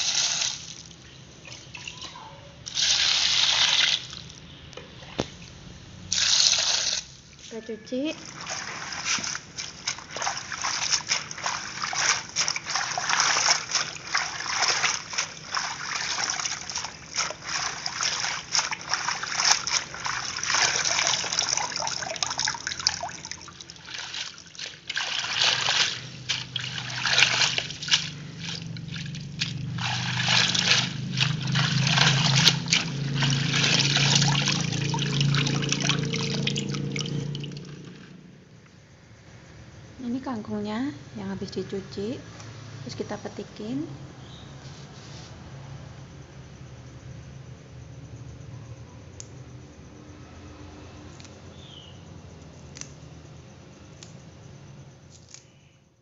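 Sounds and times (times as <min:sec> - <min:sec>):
water sloshing in a basin: 0:00.0 - 0:38.3
water dripping into a basin: 0:00.1 - 0:04.8, 0:08.0 - 0:38.2.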